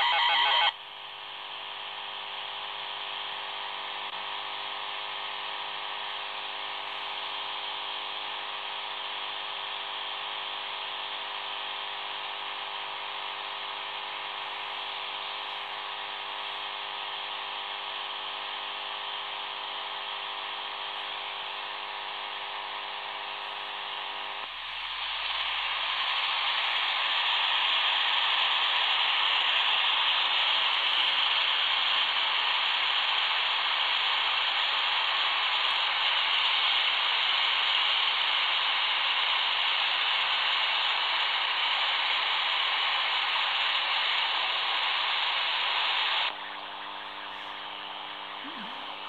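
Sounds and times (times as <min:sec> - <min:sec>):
radio static rushing: 0:00.0 - 0:00.7, 0:20.0 - 0:49.0
radio buzz of steady tones: 0:00.0 - 0:49.0.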